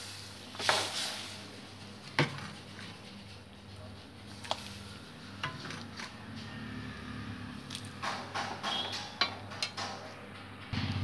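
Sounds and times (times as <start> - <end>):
metal ladle clinking on pan: 8.2 - 10.1.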